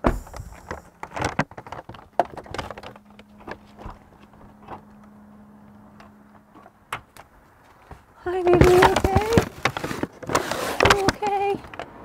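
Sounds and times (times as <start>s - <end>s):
faint steady hum: 0.0s - 9.7s
paper bag rustling: 8.4s - 11.7s.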